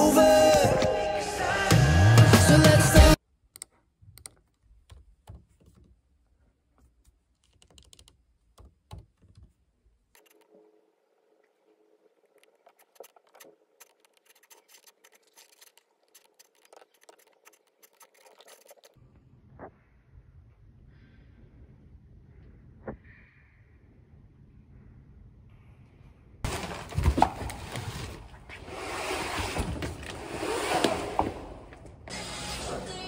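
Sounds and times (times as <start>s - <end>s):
music: 0.0s - 3.2s, 32.1s - 33.0s
laptop keyboard typing: 7.4s - 9.2s.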